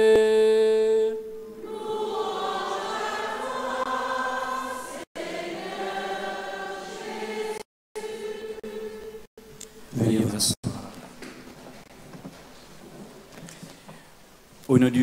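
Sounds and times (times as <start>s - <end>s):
congregation and choir singing: 1.4s - 9.6s.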